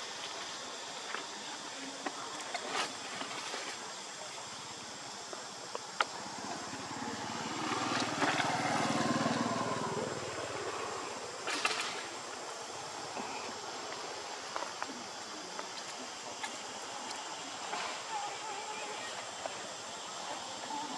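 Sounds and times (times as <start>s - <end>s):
distant motor engine passing: 6.1s - 11.6s.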